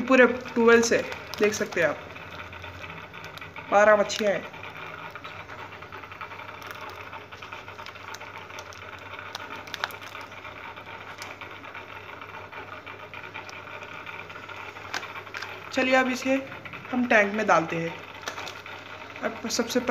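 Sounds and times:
plastic handling noise: 0.0 - 16.8, 17.8 - 19.9
aquarium pump humming: 0.0 - 19.9.

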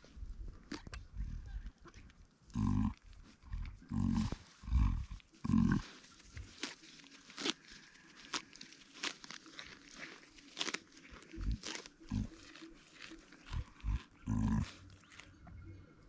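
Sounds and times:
rustles in grass: 2.6 - 15.4.

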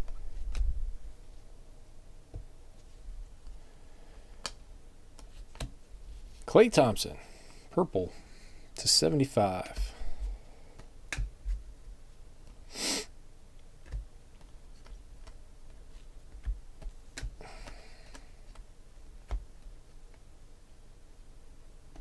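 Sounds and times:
trading cards flipped by hand: 5.2 - 6.3, 13.8 - 20.2
short hiss: 12.7 - 13.1.

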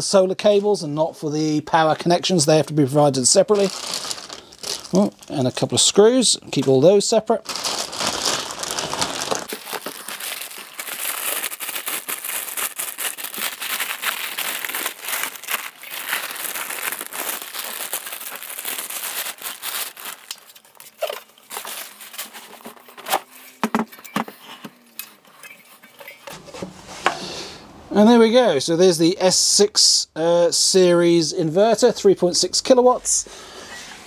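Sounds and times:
plastic bag crinkling: 3.3 - 23.2.

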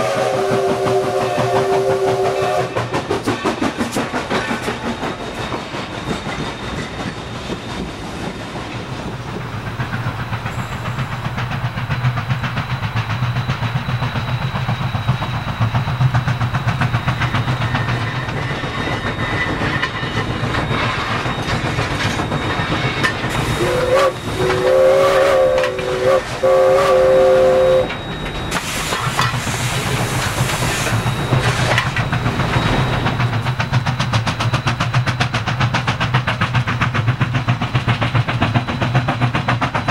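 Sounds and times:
steam whistle blasts: 0.0 - 2.9, 23.3 - 31.8
steam locomotive chuffing: 0.0 - 39.9.

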